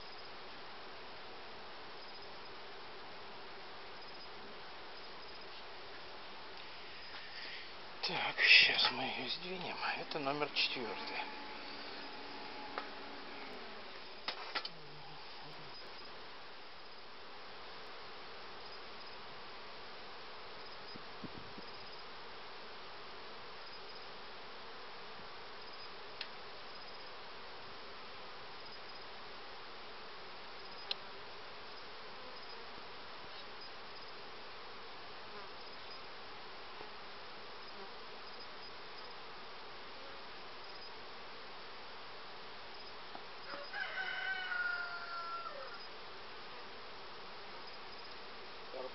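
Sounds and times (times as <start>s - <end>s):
honeybees buzzing: 6.7s - 16.1s
faint ticks: 25.6s - 26.4s, 30.6s - 31.1s, 48.0s - 48.2s.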